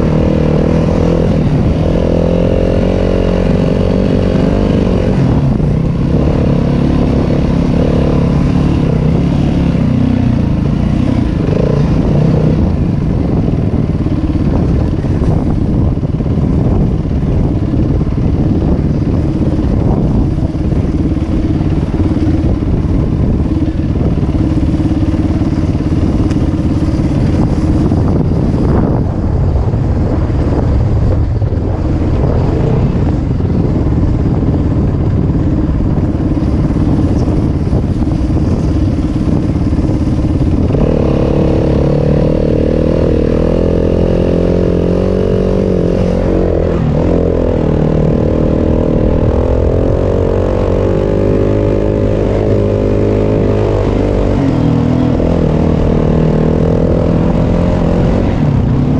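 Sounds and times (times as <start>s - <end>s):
dirt bike engine running: 0.0s - 58.9s.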